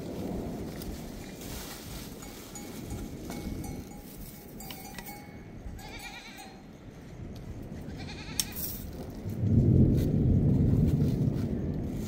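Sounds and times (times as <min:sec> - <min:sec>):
wind rumbling on microphone: 0:00.0 - 0:12.0
livestock bell ringing: 0:01.2 - 0:07.0
goats bleating: 0:05.8 - 0:06.6, 0:07.9 - 0:08.6.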